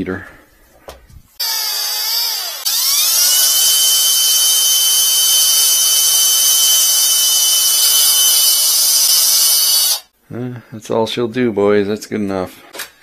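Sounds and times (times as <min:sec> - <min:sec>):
cordless drill motor whine: 0:01.4 - 0:10.0.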